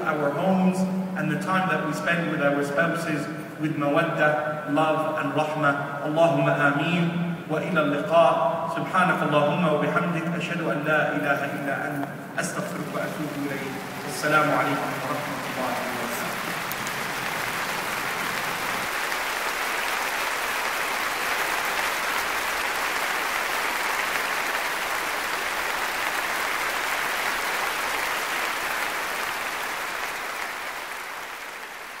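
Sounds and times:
audience applauding: 12.5 - 32.0.

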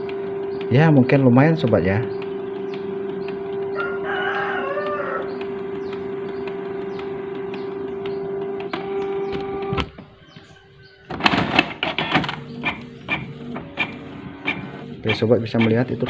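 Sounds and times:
printer motor hum with clicks: 0.0 - 16.0
rooster crowing: 3.7 - 5.4.

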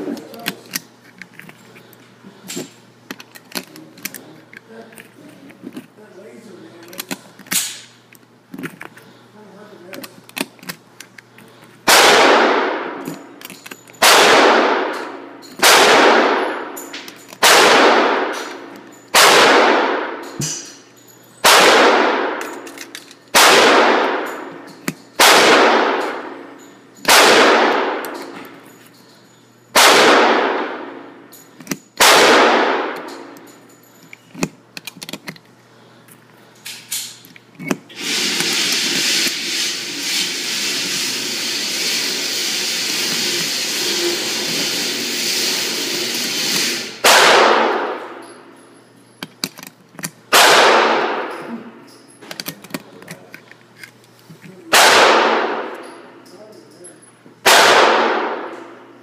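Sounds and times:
gunshots with echo: 11.9 - 13.0, 14.0 - 16.7, 17.4 - 18.5, 19.2 - 20.2, 21.4 - 22.4, 23.3 - 24.3, 25.2 - 26.3, 27.1 - 28.1, 29.8 - 31.0, 32.0 - 33.0, 46.8 - 48.2, 50.3 - 51.3, 54.7 - 55.8, 57.4 - 58.6.

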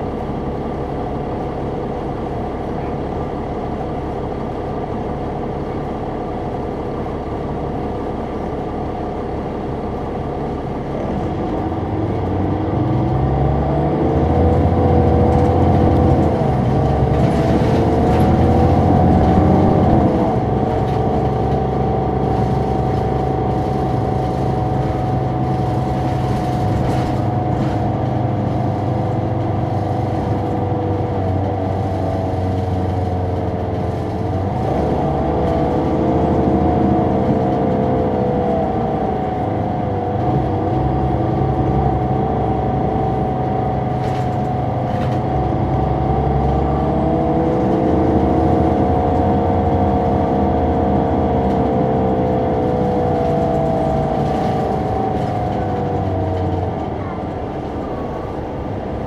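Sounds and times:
bus engine accelerating: 0.0 - 59.0.

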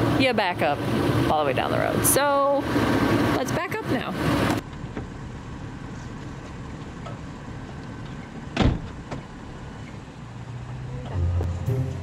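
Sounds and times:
car door slamming: 8.5 - 9.3.

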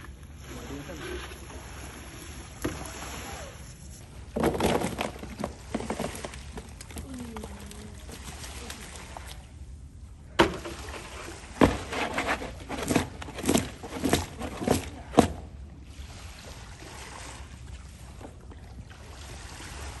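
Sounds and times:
wet fish slapping in plastic tub: 11.6 - 15.4.

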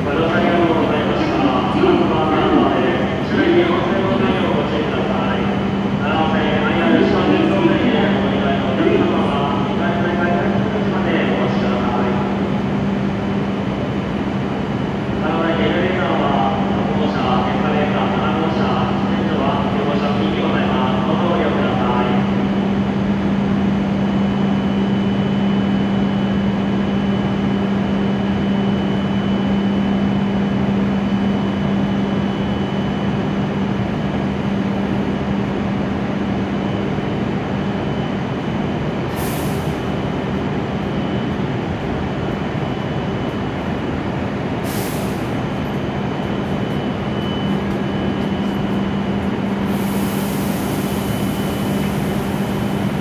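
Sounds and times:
train equipment humming with whine: 0.0 - 53.0
air hisses: 49.7 - 52.3.

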